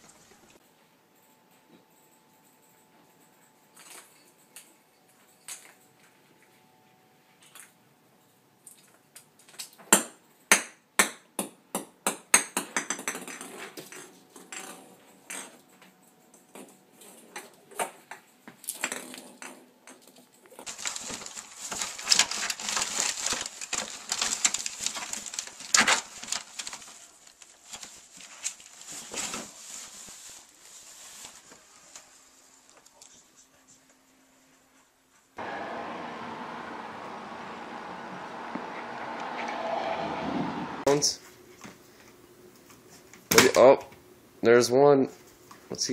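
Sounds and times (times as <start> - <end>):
rustling and scuffing: 26.6 - 32.5.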